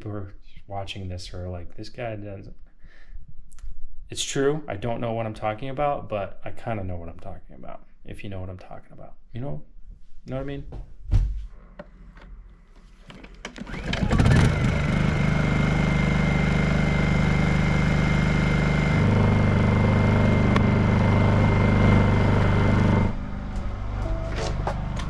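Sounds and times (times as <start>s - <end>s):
generator engine running: 13.1s - 25.0s.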